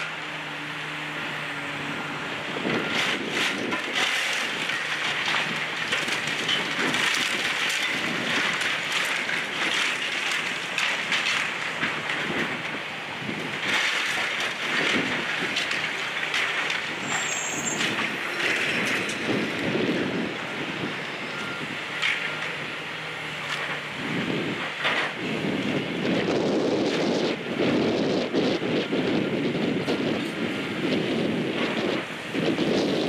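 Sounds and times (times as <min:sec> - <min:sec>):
brick debris crunching and falling: 0:02.9 - 0:12.5.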